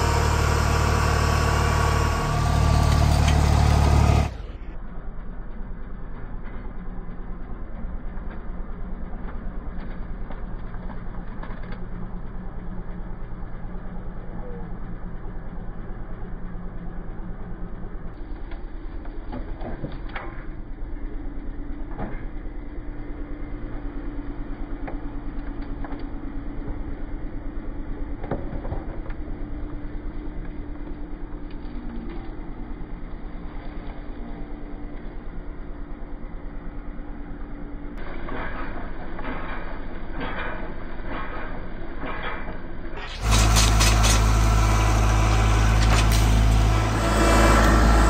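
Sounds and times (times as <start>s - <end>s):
tractor diesel engine running: 0.0s - 48.0s.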